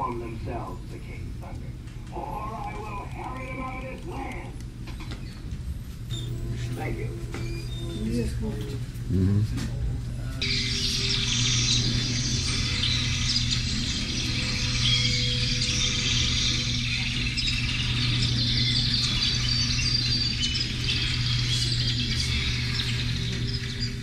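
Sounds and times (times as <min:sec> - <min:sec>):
steady low hum: 0:00.0 - 0:24.0
birds chirping: 0:02.2 - 0:08.8, 0:10.2 - 0:24.0
insects trilling: 0:10.4 - 0:24.0.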